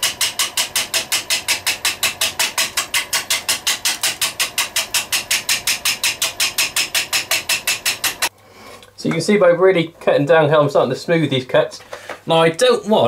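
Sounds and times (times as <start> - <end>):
lathe gouge rapid chopping: 0.0 - 8.3.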